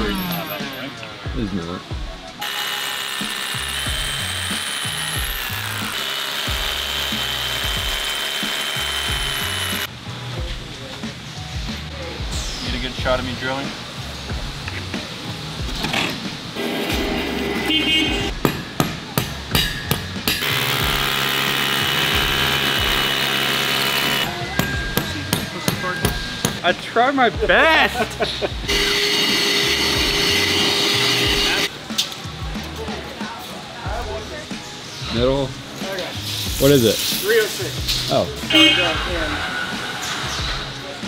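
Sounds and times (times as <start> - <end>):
background music with bass: 0.0 - 2.4, 3.6 - 41.0
drill boring into concrete: 2.4 - 9.9, 20.3 - 24.4.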